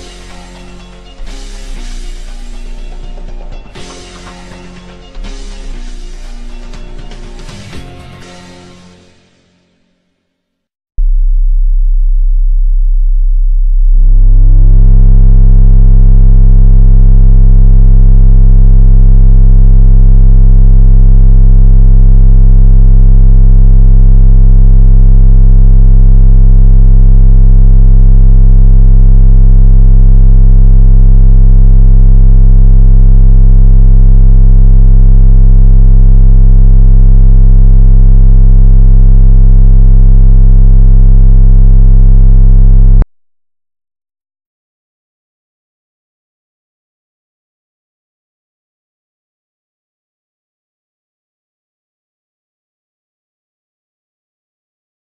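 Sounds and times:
subwoofer low test tone: 0:00.0 - 0:03.4, 0:11.0 - 0:43.1
harsh buzzy distortion: 0:11.0 - 0:43.0.

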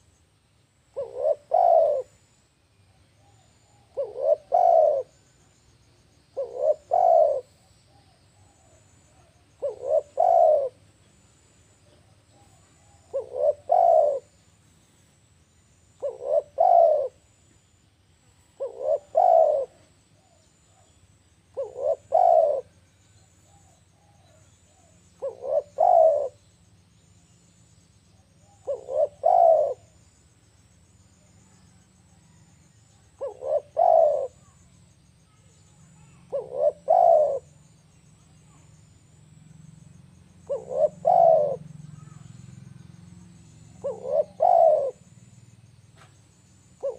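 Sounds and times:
dove cooing: 0:00.9 - 0:02.3, 0:03.2 - 0:05.4, 0:06.3 - 0:11.2, 0:11.9 - 0:14.4, 0:16.0 - 0:17.3, 0:18.6 - 0:26.5, 0:28.2 - 0:30.2, 0:31.4 - 0:35.3, 0:35.9 - 0:39.1, 0:40.4 - 0:45.4, 0:46.7 - 0:46.9.

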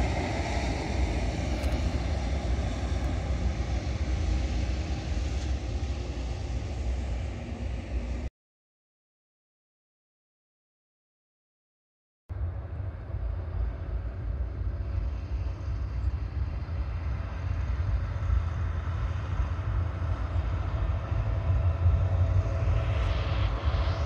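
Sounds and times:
freight train rumbling over bridge: 0:00.0 - 0:05.2.

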